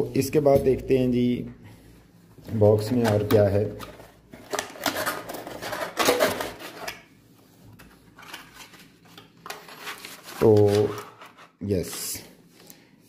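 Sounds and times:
cardboard packaging scraping and rustling: 0:03.9 - 0:06.9, 0:08.0 - 0:12.1.

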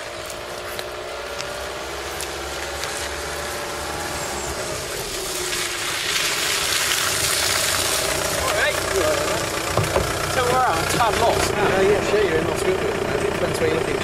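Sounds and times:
tyres hissing on wet road: 0:00.0 - 0:12.3
van engine: 0:00.0 - 0:14.0.

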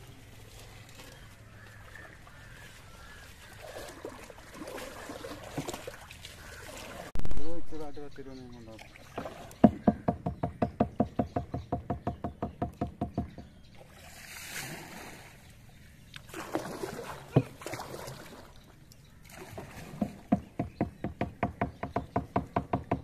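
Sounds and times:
paddle splashing through water: 0:00.0 - 0:07.2, 0:08.7 - 0:09.8, 0:13.7 - 0:20.8
knock on canoe: 0:09.2 - 0:13.6, 0:19.9 - 0:23.0.

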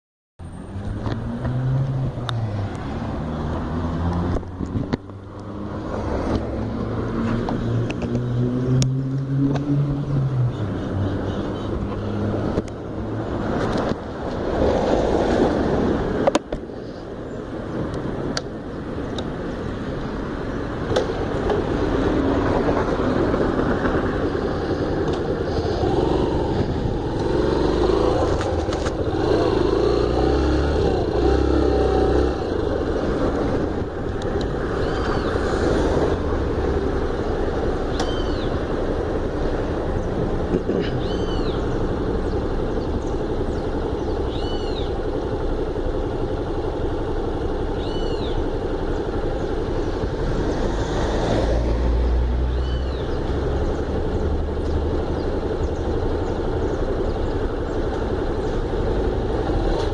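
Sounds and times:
motorcycle engine running: 0:18.8 - 0:51.4, 0:52.6 - 0:59.9.

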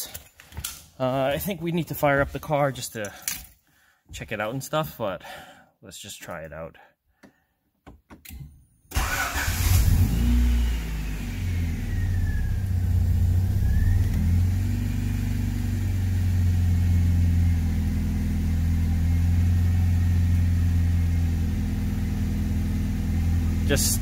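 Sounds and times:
car engine idling: 0:09.0 - 0:24.0.

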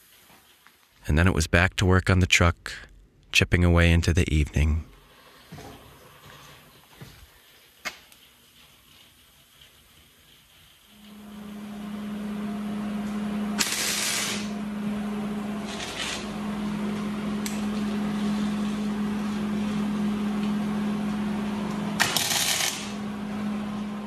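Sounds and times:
crackling hiss of tack welds: 0:00.0 - 0:01.0, 0:07.3 - 0:11.1, 0:13.6 - 0:14.5, 0:15.6 - 0:16.4, 0:22.0 - 0:23.0
welder humming: 0:10.4 - 0:24.0.

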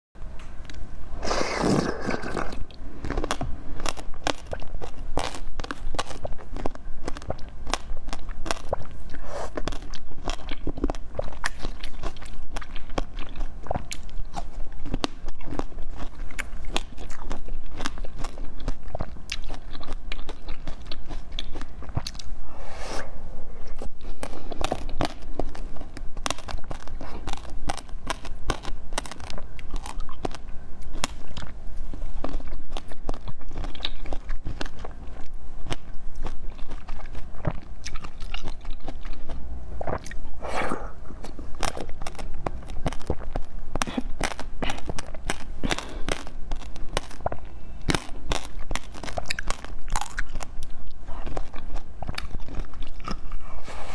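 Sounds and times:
chewing and crunching: 0:00.6 - 0:22.4, 0:23.6 - 0:53.9
slurping liquid: 0:01.2 - 0:03.2.

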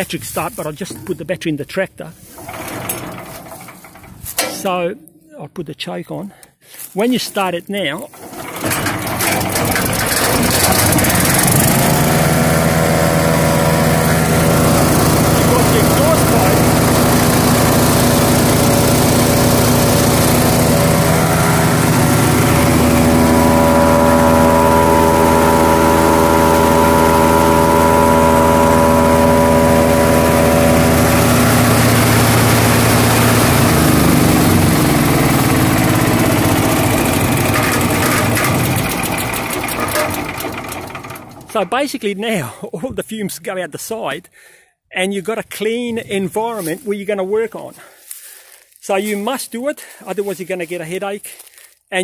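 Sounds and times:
wood chipper engine running: 0:00.0 - 0:01.4, 0:02.1 - 0:05.0, 0:07.9 - 0:42.6, 0:47.7 - 0:49.2, 0:51.3 - 0:51.8.

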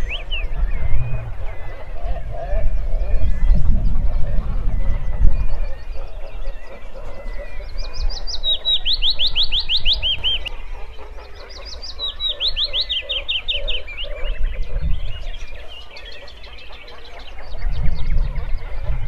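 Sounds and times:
low rumble: 0:00.0 - 0:05.4
bird singing trilling song: 0:00.0 - 0:19.0
other birds chirping: 0:00.0 - 0:19.0.

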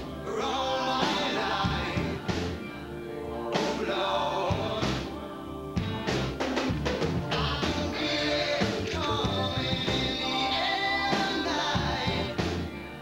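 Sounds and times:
rock song with drums: 0:01.0 - 0:02.6, 0:05.8 - 0:08.0, 0:08.6 - 0:10.2, 0:11.1 - 0:12.8.

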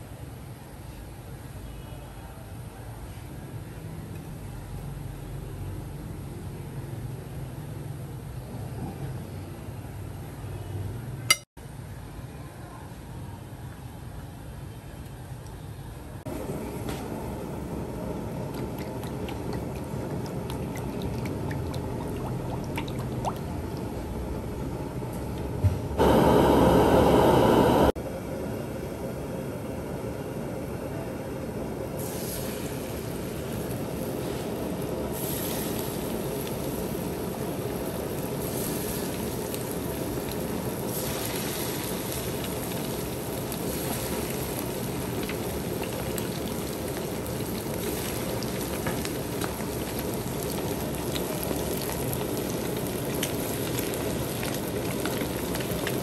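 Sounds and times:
loud rush of noise: 0:26.0 - 0:28.0
fish sizzling in oil: 0:32.0 - 0:56.0.

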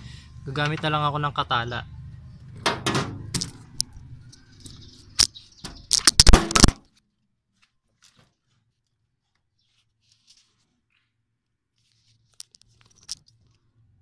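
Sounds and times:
loud knocks: 0:02.6 - 0:03.4.

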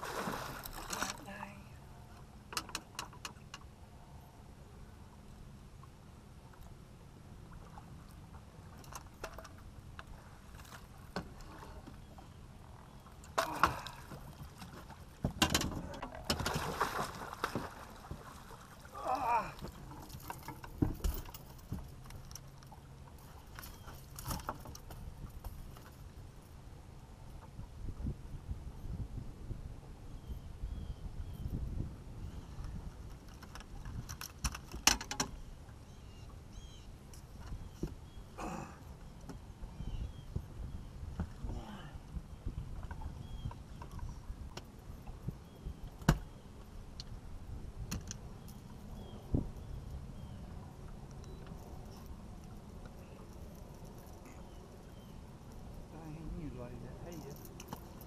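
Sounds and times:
water lapping against boat hull: 0:07.4 - 0:25.9
knocks and rattles on boat deck: 0:13.4 - 0:16.7, 0:19.6 - 0:22.0
fishing gear clicking and knocking: 0:33.2 - 0:35.4, 0:57.1 - 0:58.0.

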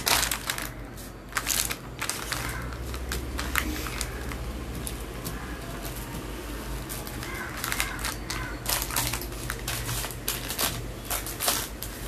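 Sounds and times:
crackling and rustling clicks: 0:00.0 - 0:12.0.

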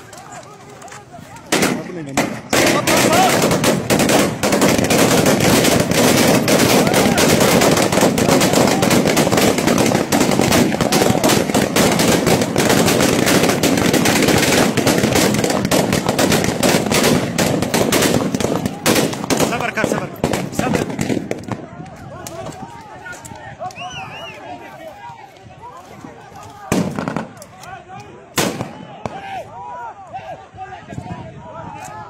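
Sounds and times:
voices: 0:00.0 - 0:32.0
rapid gunfire: 0:01.5 - 0:21.5.

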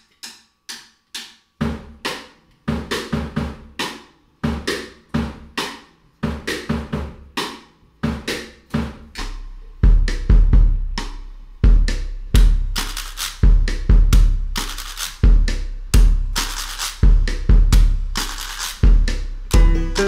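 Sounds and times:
drum kit groove: 0:00.0 - 0:20.0
banjo: 0:19.6 - 0:20.0.

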